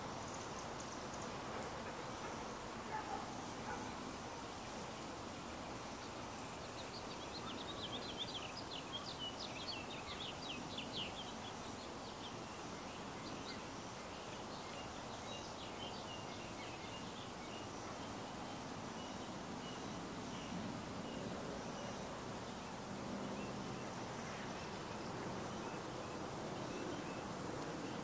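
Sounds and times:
outdoor background noise: 0:00.0 - 0:28.0
songbird twittering: 0:06.0 - 0:22.1.

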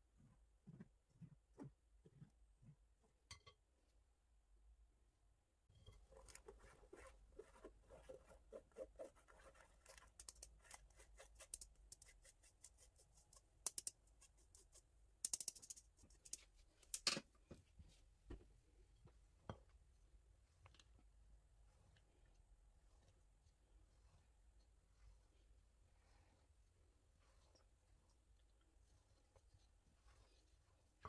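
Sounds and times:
spatula scraping mesh sieve: 0:05.9 - 0:13.5.

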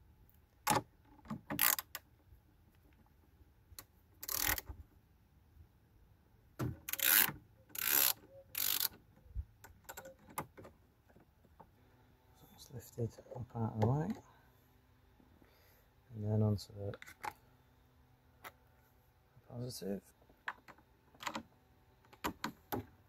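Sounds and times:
ratchet clicking: 0:01.5 - 0:02.0, 0:04.2 - 0:04.7, 0:06.9 - 0:09.0.

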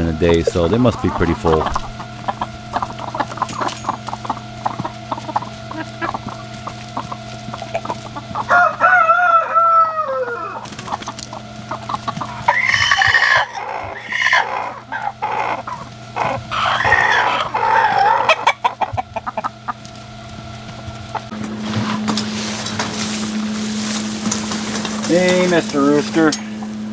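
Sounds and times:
chickens pecking with light taps: 0:00.3 - 0:09.4, 0:10.6 - 0:17.1, 0:17.8 - 0:21.3
rooster crowing: 0:07.6 - 0:10.7, 0:12.4 - 0:15.6, 0:16.5 - 0:18.8.

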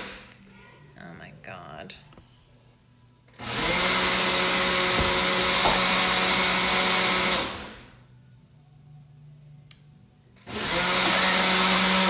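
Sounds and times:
electric blender running: 0:03.3 - 0:08.1, 0:10.4 - 0:12.0.

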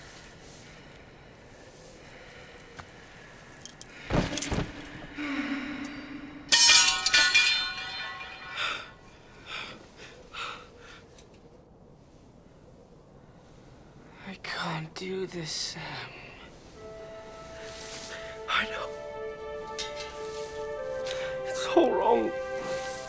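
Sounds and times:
sword clattering onto stone: 0:06.5 - 0:08.6.

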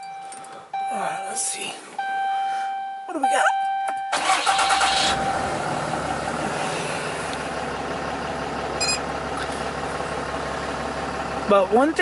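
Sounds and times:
diesel engine idling: 0:04.1 - 0:12.0.

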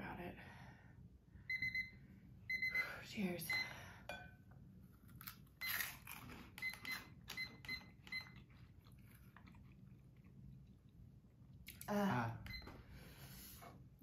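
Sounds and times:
chewing crunchy snacks: 0:05.1 - 0:07.4, 0:08.0 - 0:11.0.

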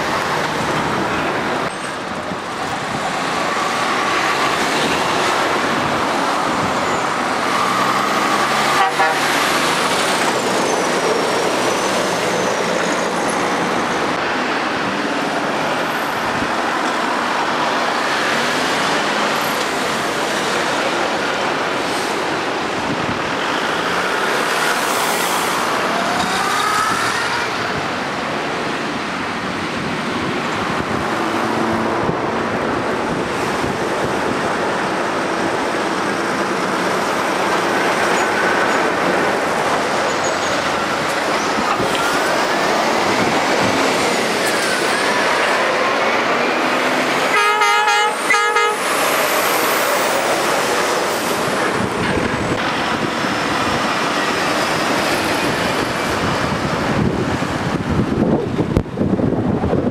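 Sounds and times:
road traffic passing: 0:00.0 - 0:59.9.

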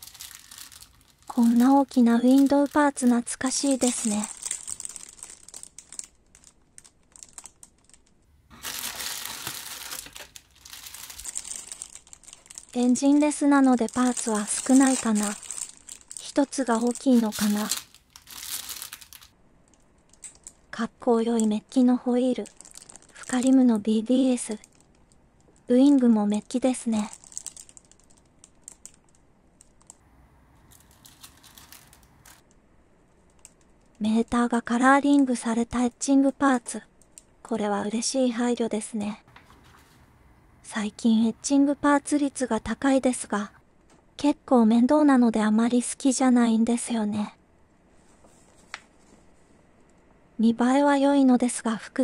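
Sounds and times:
plastic bag crinkling: 0:00.0 - 0:21.5, 0:22.2 - 0:25.7, 0:26.8 - 0:32.5
small plastic clicks: 0:19.6 - 0:20.6, 0:33.2 - 0:34.0.

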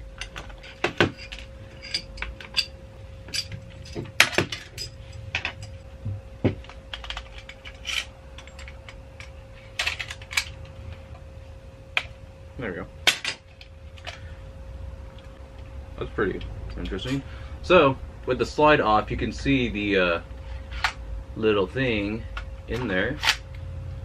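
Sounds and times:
faint steady hum: 0:00.0 - 0:24.0
plastic toy parts clacking: 0:06.9 - 0:10.6.

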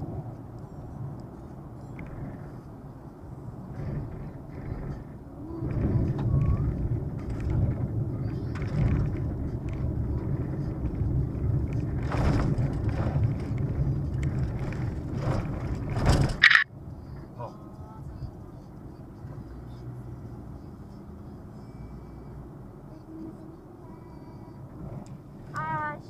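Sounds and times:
tyres rumbling on gravel: 0:03.7 - 0:16.7
car body knocks and rattles: 0:05.7 - 0:16.7.

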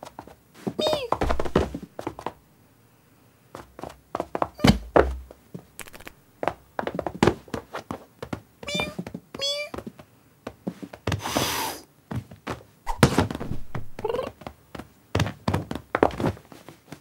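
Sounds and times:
soft thumps and knocks: 0:00.9 - 0:02.3, 0:04.2 - 0:05.4
cartoon cat mew: 0:08.7 - 0:09.8, 0:14.0 - 0:14.3
cat cry: 0:08.7 - 0:09.8
cat hiss: 0:11.2 - 0:11.9.

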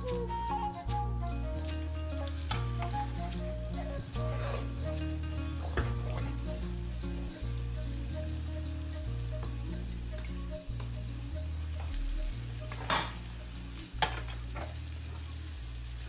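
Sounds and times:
onions sizzling in butter: 0:00.1 - 0:16.0
spoon stirring porridge: 0:02.3 - 0:06.8.

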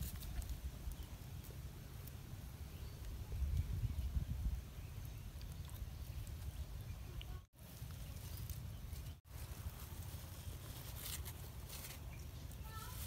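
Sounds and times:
wind rumble on microphone: 0:02.8 - 0:07.4.

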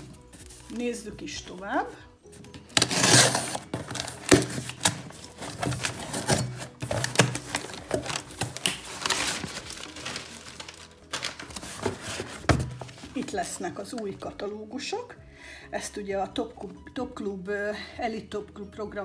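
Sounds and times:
cardboard flaps rustling: 0:02.4 - 0:13.4
knife slitting packing tape: 0:02.7 - 0:09.5.

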